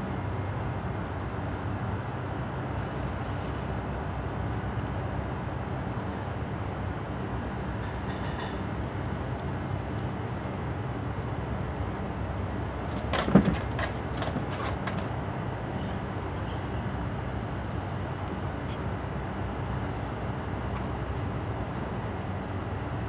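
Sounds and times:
low rumbling background noise: 0.0s - 23.0s
sharp clicks and knocks: 12.8s - 15.2s.

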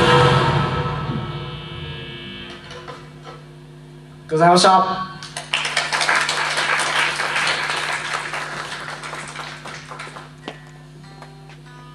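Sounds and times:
low amplifier hum: 0.0s - 11.9s
audience applauding: 5.2s - 10.6s.

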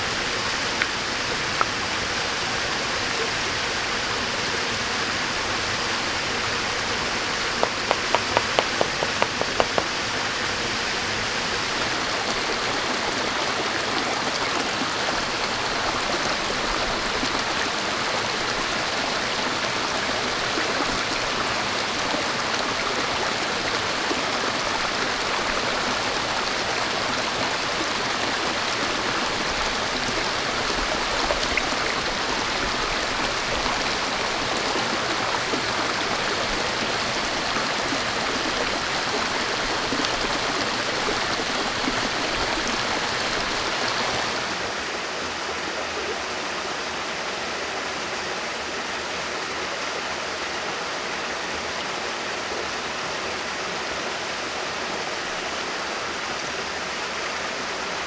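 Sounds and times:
rocky stream rushing: 0.0s - 58.0s.

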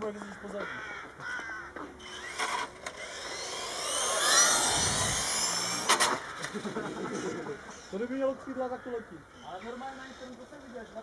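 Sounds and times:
electric motor whine: 2.0s - 7.5s.

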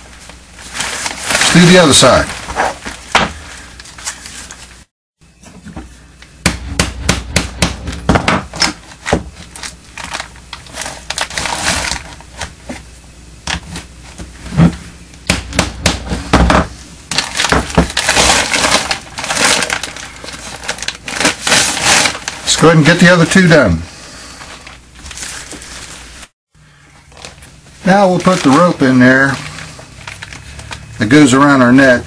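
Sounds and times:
plastic tarp crinkling: 0.0s - 4.9s, 9.4s - 12.4s, 17.1s - 23.7s, 24.5s - 26.3s, 27.1s - 31.6s.

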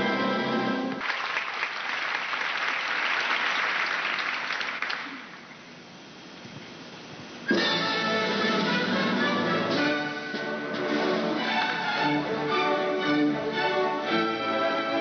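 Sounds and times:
orchestral music: 0.0s - 1.0s, 7.5s - 15.0s
audience applause: 0.9s - 5.4s.

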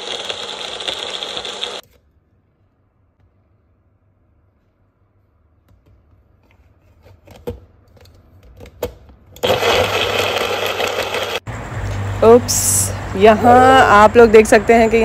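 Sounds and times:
blender motor whirring: 0.0s - 1.8s, 9.4s - 11.4s.

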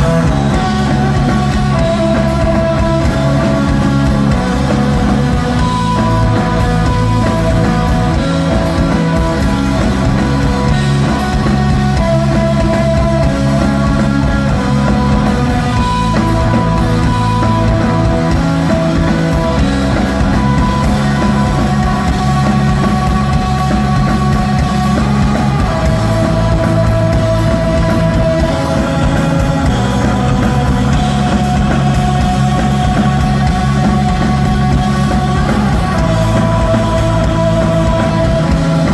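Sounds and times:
bass guitar: 0.0s - 38.9s
drums: 0.0s - 38.9s
electric guitar: 0.0s - 38.9s.

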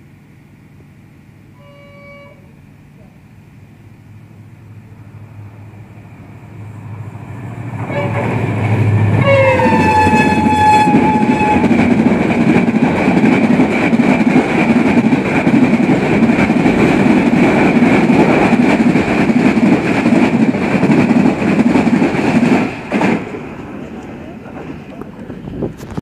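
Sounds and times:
train coaches rumbling on rails: 0.2s - 26.0s
locomotive horn: 1.5s - 2.6s, 7.8s - 8.5s, 9.1s - 11.8s.

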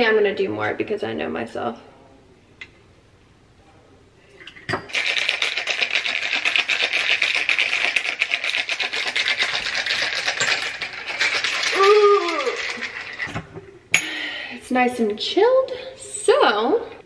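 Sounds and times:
ice rattling in cocktail shaker: 4.7s - 13.5s
person exclaiming: 11.7s - 12.8s.

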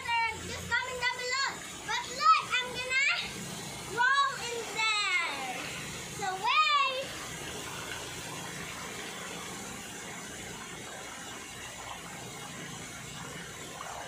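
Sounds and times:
fountain water splashing into pool: 0.0s - 14.0s.

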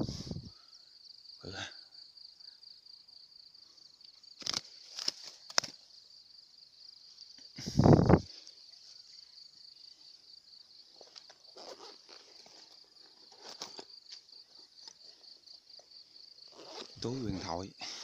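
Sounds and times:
insects chirring: 0.0s - 18.0s
grass rustling: 4.4s - 5.8s, 7.0s - 9.4s, 10.8s - 17.5s.

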